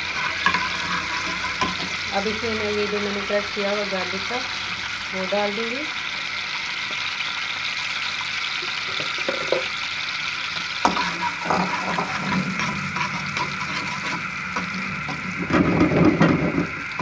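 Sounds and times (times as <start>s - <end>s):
metal spoon scraping pan: 0.0s - 2.5s, 10.8s - 16.5s
garlic sizzling in a wok: 0.0s - 17.0s.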